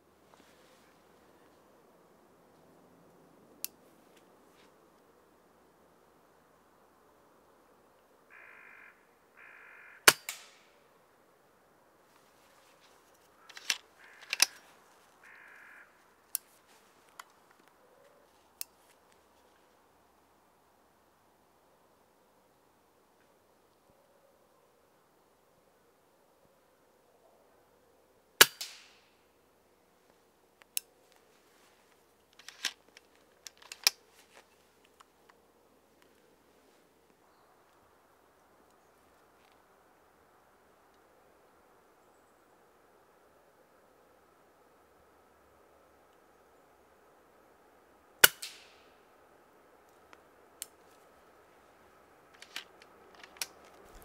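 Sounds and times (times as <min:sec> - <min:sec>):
quiet rifle handling clicks: 0:12.8 - 0:19.5, 0:30.6 - 0:35.4, 0:49.9 - 0:51.1, 0:52.3 - 0:54.0
faint clicks: 0:52.3 - 0:54.0.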